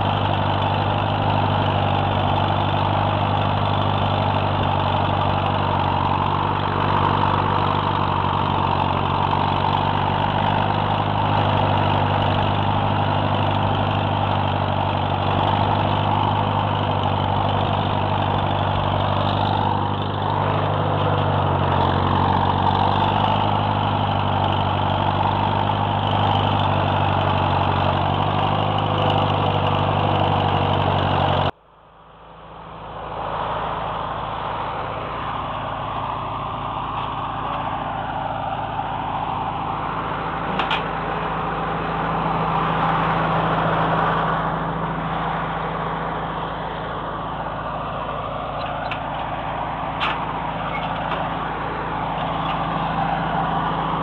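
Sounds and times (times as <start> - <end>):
tractor engine running under load: 0.0 - 54.0.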